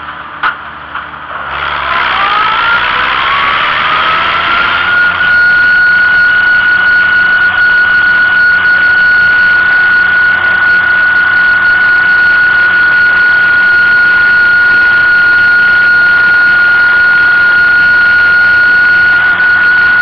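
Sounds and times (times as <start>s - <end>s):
high-pitched whine: 0.0s - 20.0s
tractor engine running: 0.0s - 20.0s
rushing noise: 1.4s - 7.8s.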